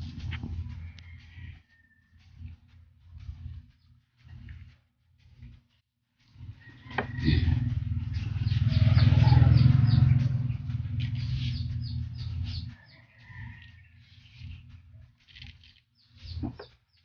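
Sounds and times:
vehicle engine passing: 0:06.3 - 0:15.7
birds chirping: 0:06.4 - 0:17.0.

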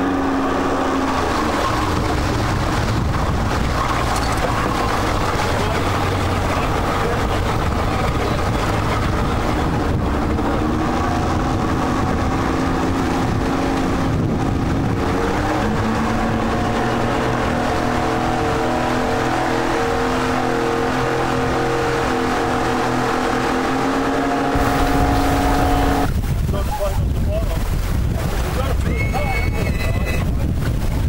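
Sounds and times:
outboard engine running: 0:00.0 - 0:31.0.

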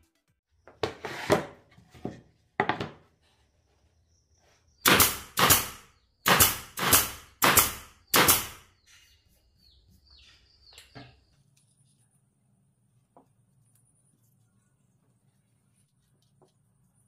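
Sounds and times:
nail gun firing: 0:04.8 - 0:08.7.

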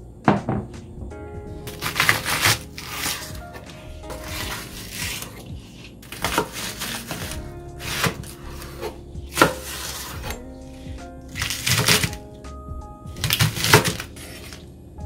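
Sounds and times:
blade knocking cutting board: 0:06.1 - 0:07.3
knife cutting green onion: 0:06.1 - 0:07.3, 0:07.9 - 0:10.4.

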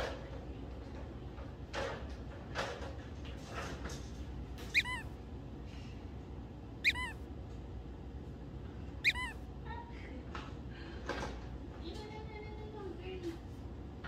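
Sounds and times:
dog whining: 0:04.6 - 0:05.2, 0:06.8 - 0:07.2, 0:09.0 - 0:09.4.

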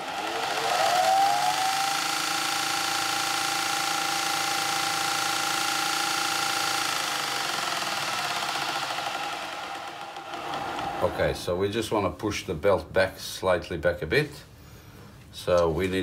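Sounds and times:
floor sander whining: 0:00.0 - 0:11.6.

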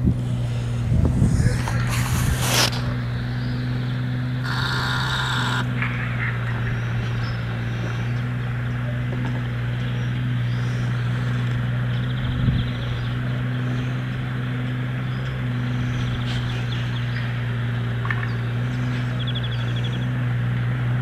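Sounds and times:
machine engine humming: 0:00.0 - 0:12.2
small birds twittering: 0:01.3 - 0:08.8, 0:09.4 - 0:20.2.

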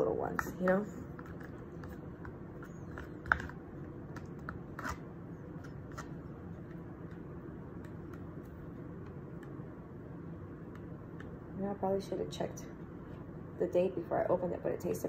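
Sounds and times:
spoon scraping plastic cup: 0:04.4 - 0:05.0.

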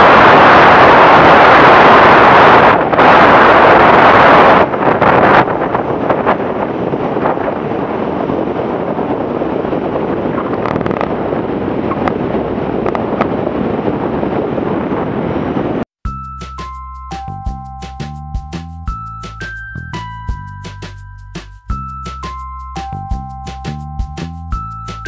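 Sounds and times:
aircraft engine and propeller: 0:00.0 - 0:15.8, 0:21.8 - 0:25.0
wind rushing over microphone: 0:00.0 - 0:15.9
music: 0:16.0 - 0:25.0.

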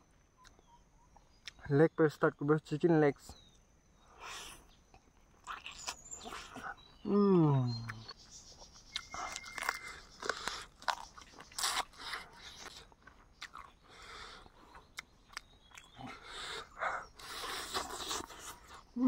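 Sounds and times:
person chewing chicken: 0:05.4 - 0:06.8, 0:08.9 - 0:18.8.

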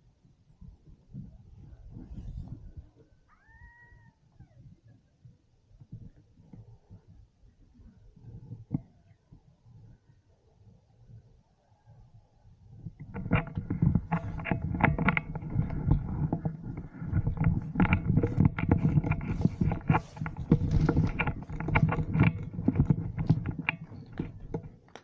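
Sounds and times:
camera handling rumble: 0:13.0 - 0:25.0
gear knocking and rustling: 0:13.0 - 0:25.0.

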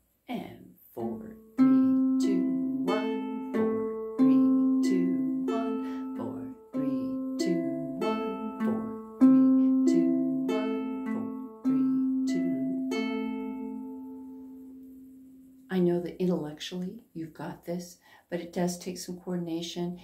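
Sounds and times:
ukulele fingerpicked slowly: 0:01.0 - 0:15.6.

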